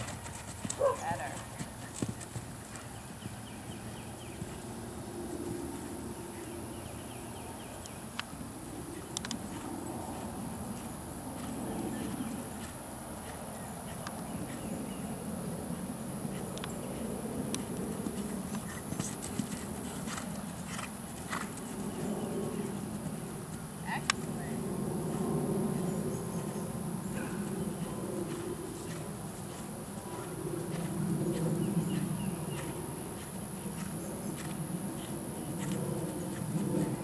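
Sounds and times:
horse hoofbeats on sand: 0.0s - 4.7s, 16.3s - 23.3s, 27.2s - 37.0s.

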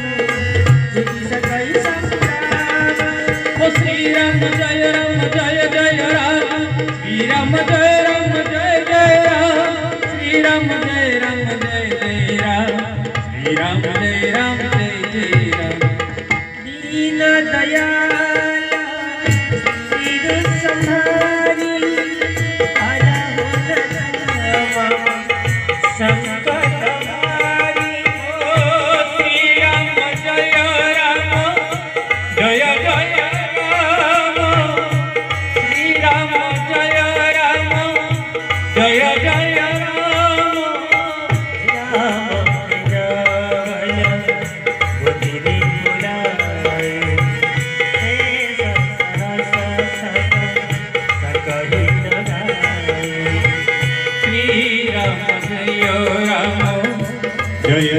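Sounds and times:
harmonium melody: 0.0s - 57.9s
tabla rhythm: 0.0s - 57.9s
person singing: 16.6s - 57.9s.

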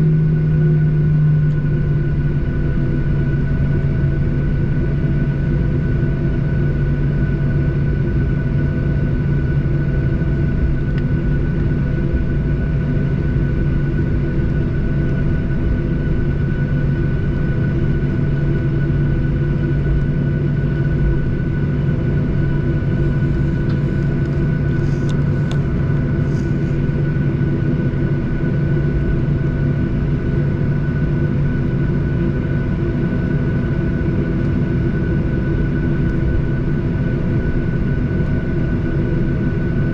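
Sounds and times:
jet engine low hum: 0.0s - 39.9s
thin high engine whine: 0.0s - 39.9s.

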